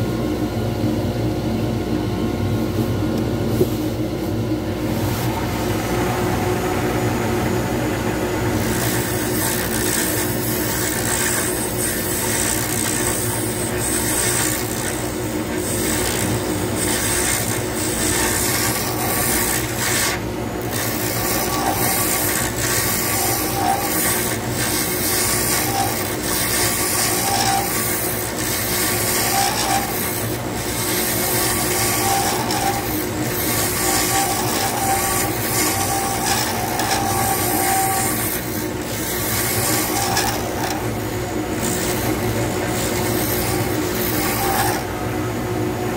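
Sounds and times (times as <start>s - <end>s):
wood lathe motor hum: 4.8s - 45.4s
turning tool scraping: 8.4s - 45.0s.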